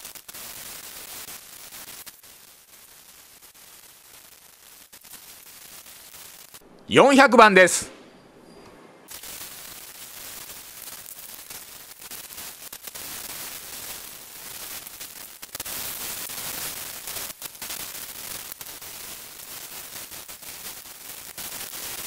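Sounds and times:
sped-up sanding crackling hiss: 0.0 - 6.6, 9.1 - 22.0.

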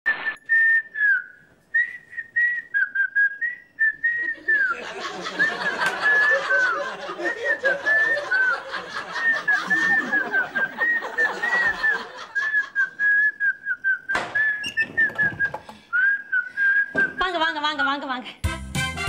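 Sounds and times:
person whistling a tune: 0.4 - 4.8, 7.2 - 17.3
backing music: 18.4 - 19.0.

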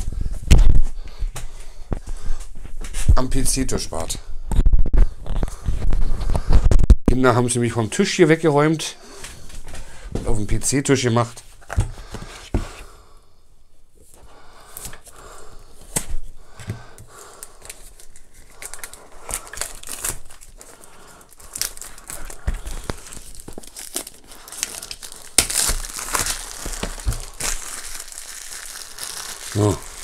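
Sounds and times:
plastic wrap crinkling and tearing: 17.0 - 30.0.

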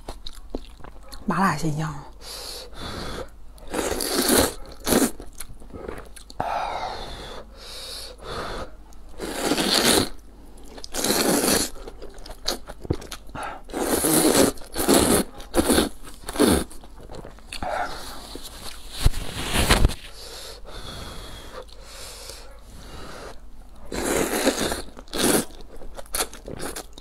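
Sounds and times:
chewing: 0.0 - 1.2, 3.6 - 6.4, 8.9 - 18.8, 23.3 - 27.0
wet noodle slurping: 3.7 - 5.2, 9.2 - 10.2, 10.8 - 12.3, 13.6 - 16.8, 23.2 - 25.6.

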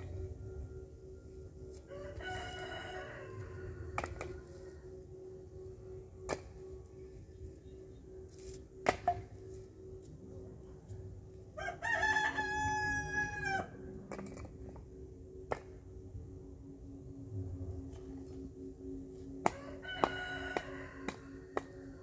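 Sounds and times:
steady low hum: 0.0 - 22.0
rooster crowing: 1.9 - 5.0, 11.6 - 13.8, 19.5 - 21.9.

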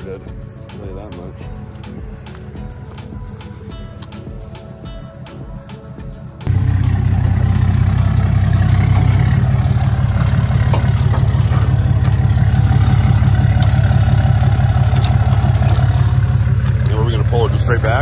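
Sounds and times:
diesel engine running at low revs: 6.4 - 18.0.

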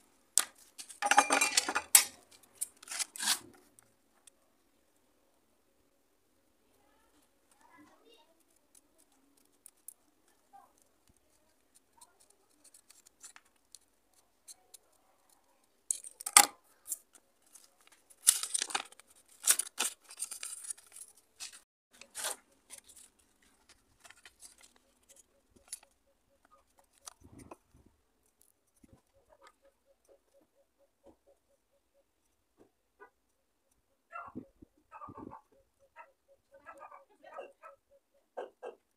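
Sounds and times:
scissors snipping paper: 2.0 - 3.5, 8.3 - 27.6
paper rustling and crackling: 2.0 - 3.7, 8.4 - 14.9, 15.9 - 25.9.

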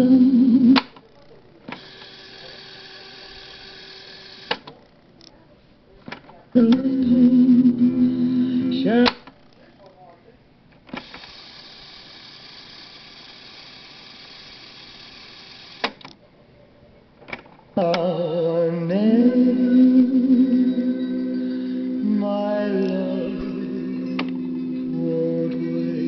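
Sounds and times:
music playing from tape: 6.6 - 9.2, 18.9 - 26.0
tape winding hiss: 10.9 - 16.1, 21.1 - 26.0.

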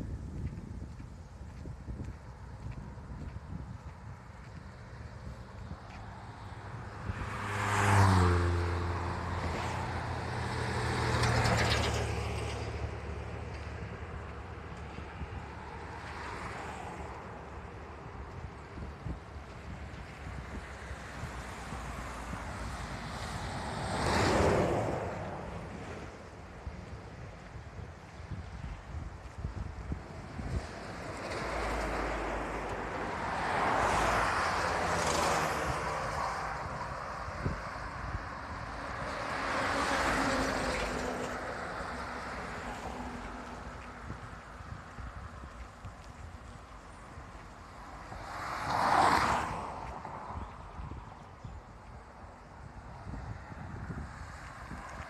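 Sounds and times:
vehicles passing on highway: 0.0 - 55.0.

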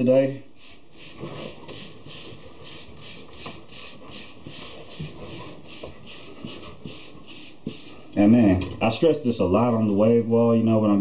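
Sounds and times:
hair brush scraping through hair: 0.6 - 8.0.

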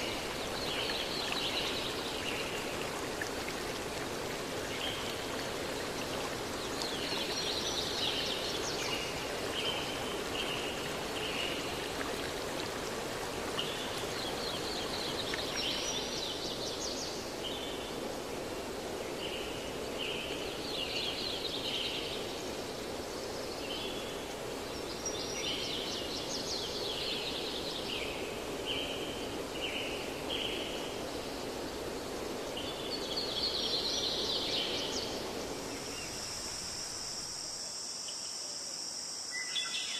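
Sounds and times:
stream flowing: 0.0 - 37.9.

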